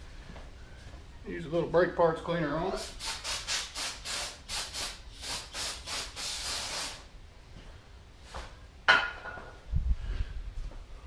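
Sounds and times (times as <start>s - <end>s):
spray hissing: 2.7s - 7.1s.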